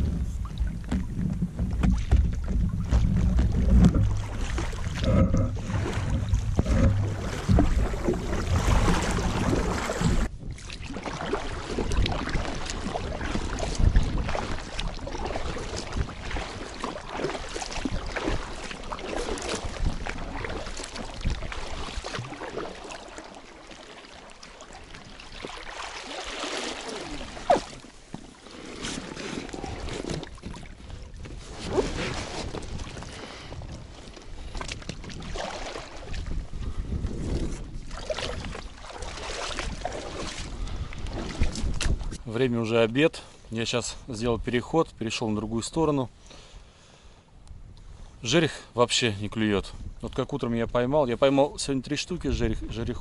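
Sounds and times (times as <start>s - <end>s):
wind on microphone: 0.0s - 16.8s, 17.4s - 22.3s, 29.4s - 42.3s
water splashing: 0.0s - 36.8s, 37.4s - 42.2s
oars pulling through water: 0.0s - 44.1s.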